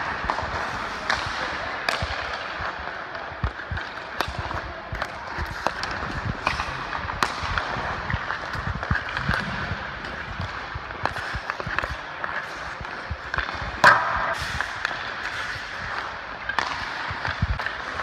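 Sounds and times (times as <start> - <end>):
skate blades scraping ice: 0.0 - 18.0
stick hitting puck: 0.0 - 18.0.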